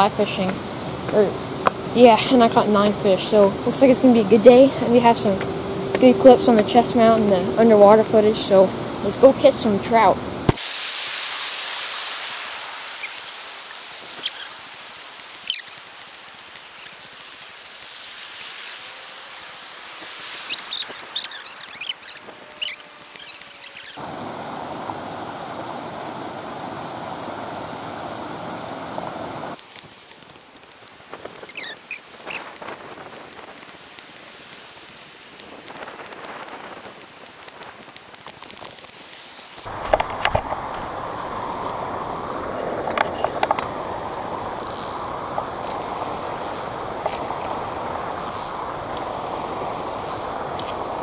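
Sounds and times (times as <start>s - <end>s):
creek water rushing: 0.0s - 51.0s
sharp clicks and knocks: 29.6s - 40.5s.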